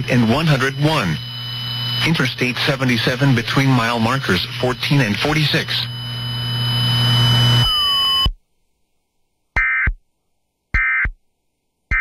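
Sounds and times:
low hum with whine and hiss: 0.0s - 8.2s
raspy data bursts: 0.0s - 8.3s.

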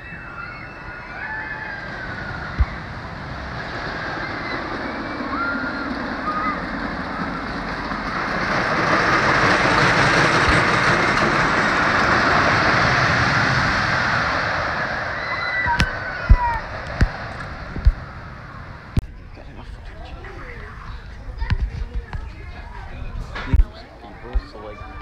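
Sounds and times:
roller coaster rattling on wooden track: 0.0s - 25.0s.

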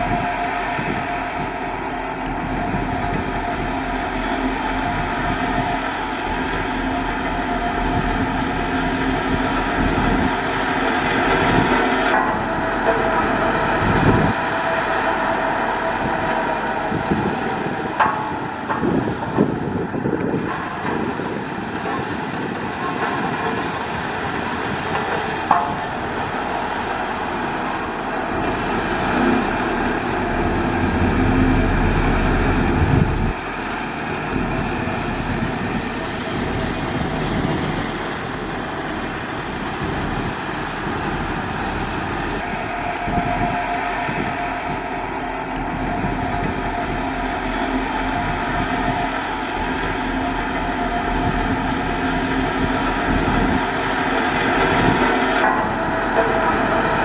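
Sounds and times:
diesel engine running: 0.0s - 57.0s
deep rumble: 25.7s - 57.0s.

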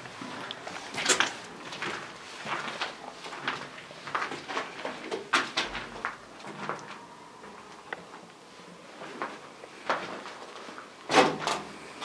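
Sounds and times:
footsteps on brick floor with debris: 0.0s - 7.1s, 9.0s - 11.0s.

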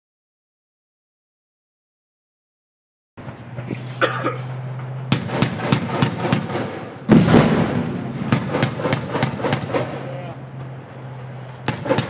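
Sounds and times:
heavy boom with long echo: 4.8s - 10.4s, 11.6s - 12.0s
autocannon firing single shots: 5.1s - 10.1s, 11.7s - 12.0s.

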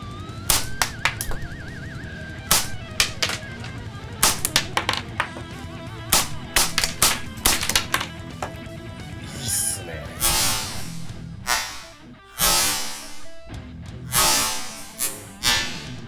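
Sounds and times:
light background music: 0.0s - 16.0s.

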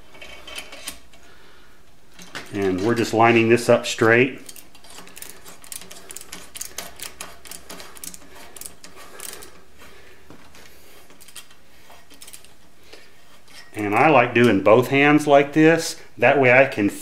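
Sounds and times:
ratcheting tap wrench clicking: 4.5s - 9.6s.

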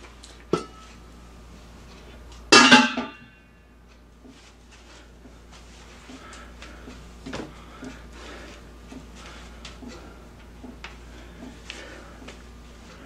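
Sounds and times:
metal cookware clang: 2.5s - 3.4s.

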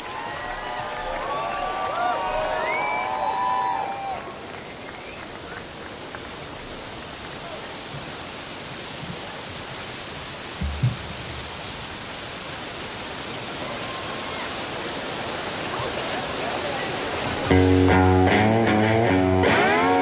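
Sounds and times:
arena crowd cheering: 0.0s - 7.9s, 13.4s - 20.0s
low thump: 10.6s - 11.5s.

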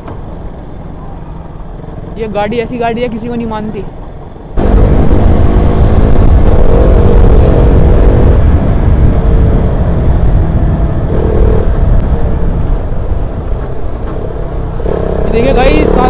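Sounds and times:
wind rumble on microphone: 0.0s - 16.0s
motorcycle engine running: 4.6s - 16.0s.

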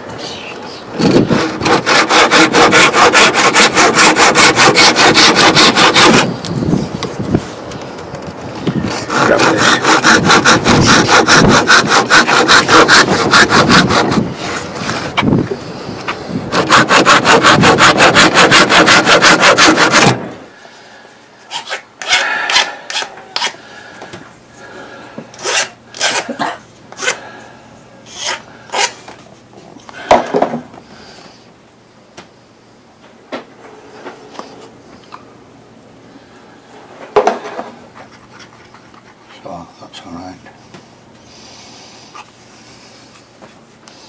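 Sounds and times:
handsaw cutting wood: 1.0s - 6.3s, 8.8s - 15.2s, 16.5s - 20.4s, 21.5s - 23.6s, 25.4s - 26.3s, 28.1s - 29.0s.

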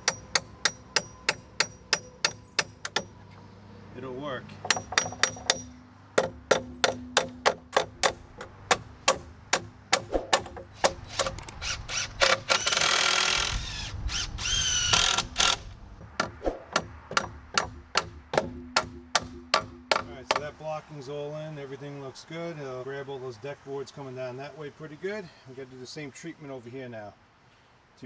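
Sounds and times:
hammer striking nails: 0.0s - 3.1s, 4.6s - 11.4s, 16.1s - 20.5s.

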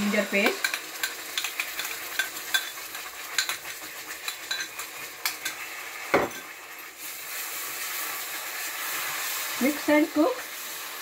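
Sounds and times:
paste sizzling in ghee: 0.0s - 11.0s
spatula clicks and scrapes: 0.4s - 5.6s.

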